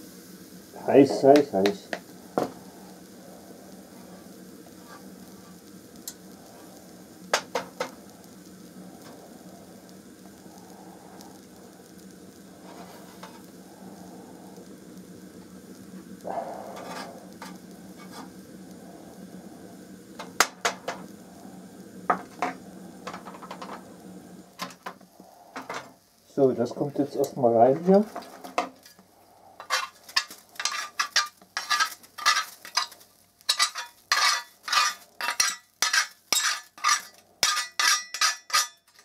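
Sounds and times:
gas burner hissing: 0.0s - 39.0s
metal spoon scraping metal: 29.6s - 39.0s.

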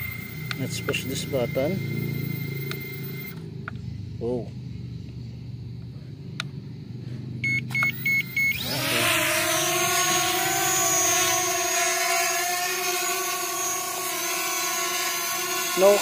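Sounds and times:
short beeps: 0.0s - 3.4s, 7.4s - 8.6s
quadcopter motors whining: 0.0s - 4.0s, 7.4s - 16.0s.

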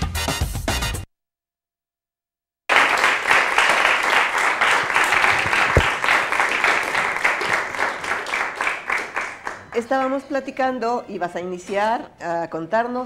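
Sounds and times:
audience applauding: 2.7s - 9.9s.

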